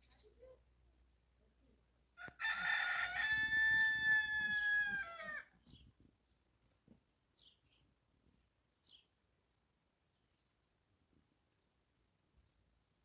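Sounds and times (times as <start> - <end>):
rooster crowing: 2.2 - 5.5.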